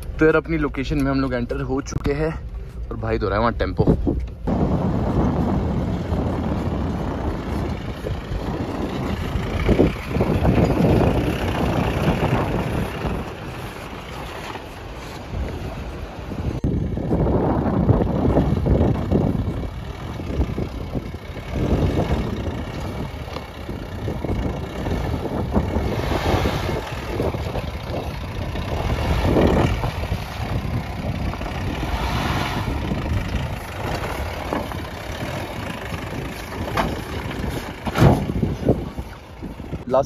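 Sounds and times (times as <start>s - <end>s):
diesel engine running at low speed: 0.0s - 40.0s.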